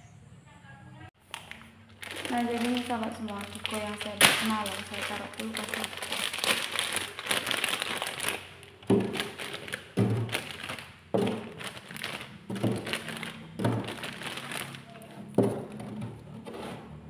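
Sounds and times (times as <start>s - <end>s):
plastic bag crinkling: 1.2s - 16.0s
ice pops thunking on plastic: 8.8s - 16.3s.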